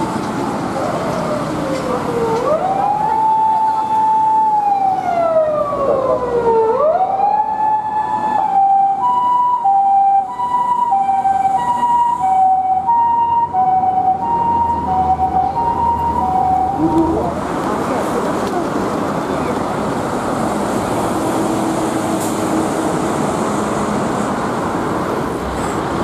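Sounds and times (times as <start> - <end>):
ambulance siren: 0.0 - 17.5
light traffic noise: 0.0 - 26.0.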